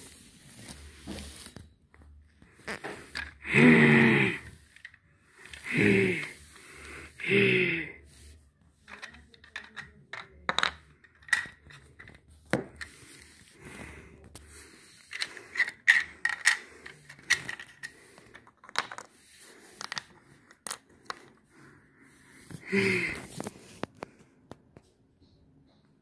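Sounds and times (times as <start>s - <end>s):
toy rolling and scraping: 0.0s - 7.2s, 8.0s - 13.6s, 14.2s - 21.5s
toy clicks and taps on floor: 8.9s - 12.9s.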